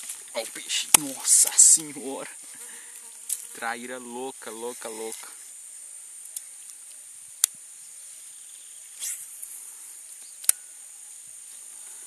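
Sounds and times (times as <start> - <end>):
high-pitched insect chorus: 0.0 - 12.0
brief hiss: 8.9 - 9.6.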